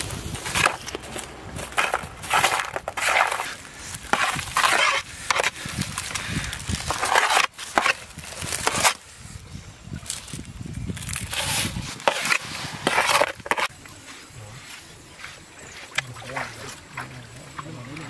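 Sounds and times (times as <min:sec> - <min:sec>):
machete scraping: 0:00.0 - 0:09.2, 0:10.0 - 0:14.3.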